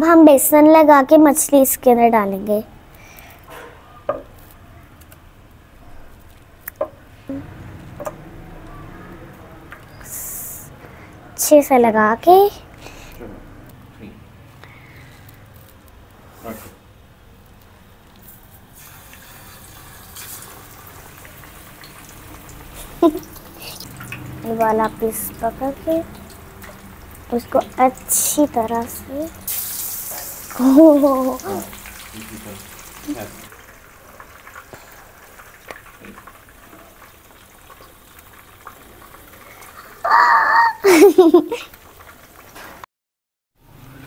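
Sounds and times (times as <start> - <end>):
fish sizzling in hot oil: 18.2 - 42.8
small pops and crackles of oil: 34.4 - 39.8.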